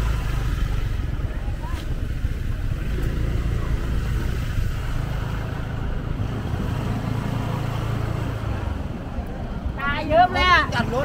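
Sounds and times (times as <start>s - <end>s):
road traffic: 0.0s - 11.0s.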